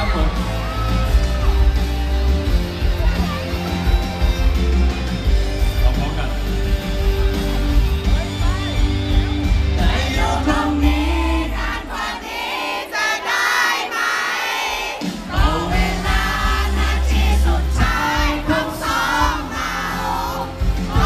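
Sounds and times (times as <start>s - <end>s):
amplified backing track: 0.0s - 11.9s
man singing into microphone: 9.8s - 11.7s.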